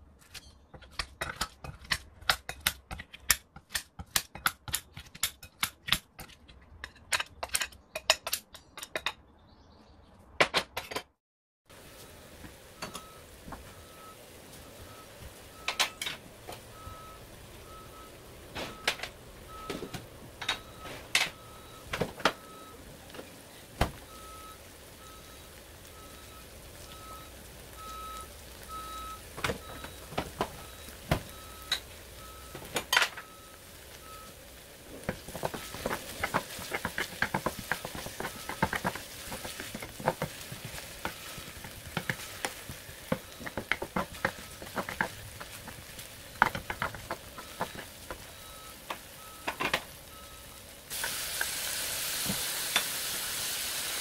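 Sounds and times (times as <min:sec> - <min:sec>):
onions sizzling in oil: 0:11.7 - 0:54.0.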